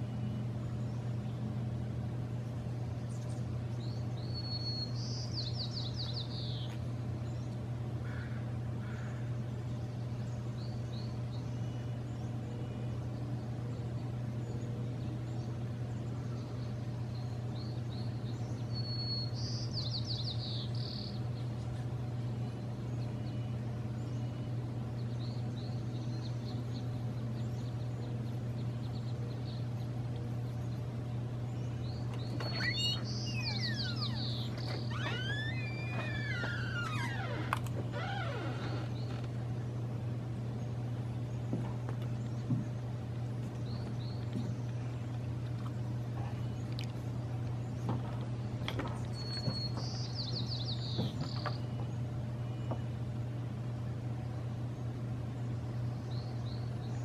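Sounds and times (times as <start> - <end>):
songbird singing: 0.0 - 57.0
steady low hum: 0.0 - 57.0
short bird chirps: 32.1 - 37.1.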